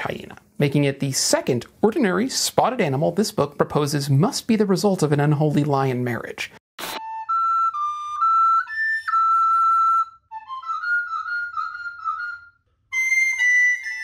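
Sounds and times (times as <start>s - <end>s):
recorder melody: 6.8s - 14.0s.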